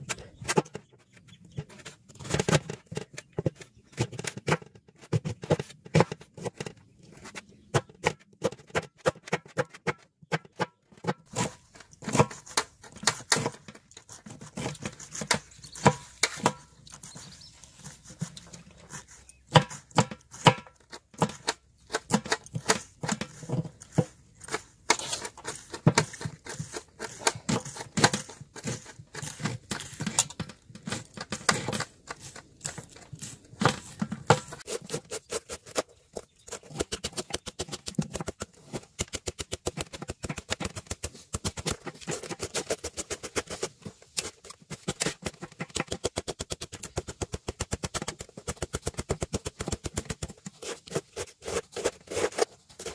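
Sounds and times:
knives chopping on metal plate: 7.8 - 17.1, 19.5 - 35.9.

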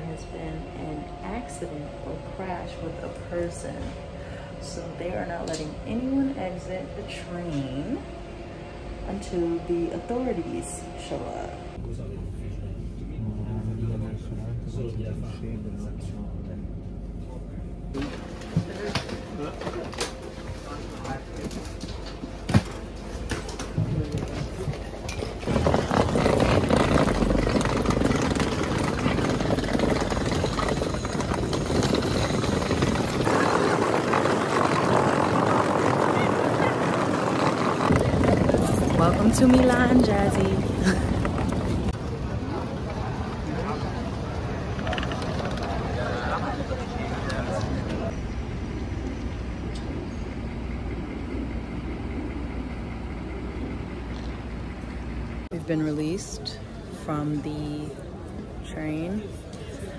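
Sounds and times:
traffic rumble: 0.0 - 59.9
suitcase wheels rattling on gravel: 24.3 - 41.9.

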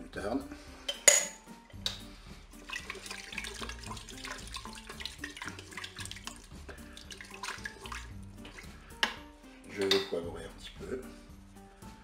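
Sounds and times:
spoon knocking and scraping pot: 0.9 - 2.0
liquid sloshing: 2.6 - 8.8.

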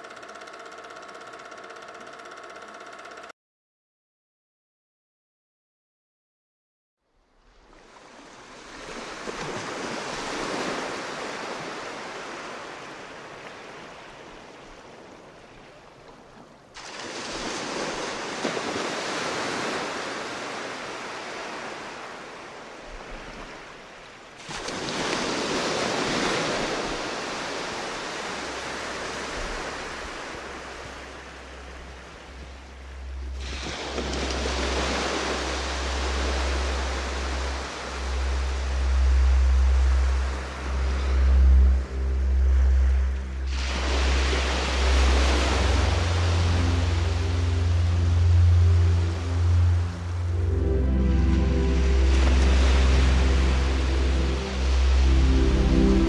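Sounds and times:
ocean waves rushing: 7.6 - 16.0, 16.7 - 56.0
low rumble: 30.9 - 56.0.

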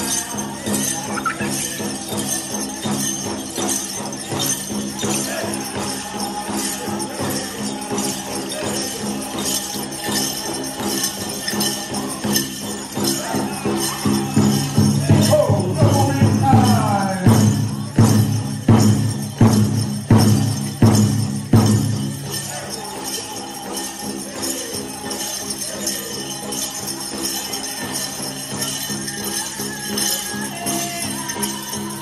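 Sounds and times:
high voices singing: 0.0 - 18.1, 22.1 - 32.0
jingling bells: 0.0 - 32.0
big drum beats: 0.1 - 22.7.

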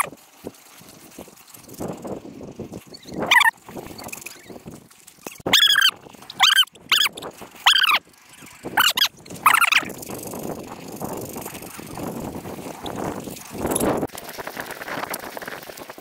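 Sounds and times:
dog whining and yelping: 3.3 - 3.5, 5.5 - 8.0, 8.8 - 9.9.

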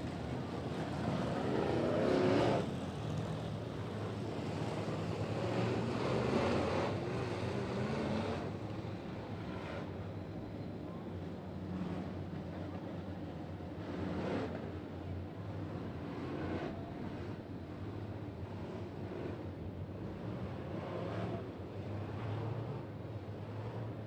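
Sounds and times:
race car engines passing: 0.0 - 10.0.

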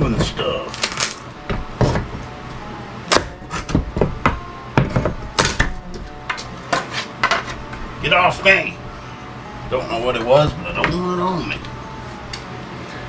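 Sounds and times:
pry bar cracking wood trim: 0.3 - 2.2.

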